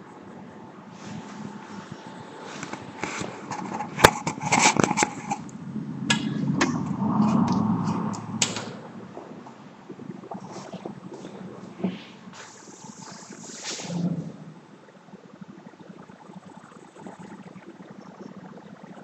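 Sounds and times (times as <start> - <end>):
rolling rumble: 0.0 - 14.9.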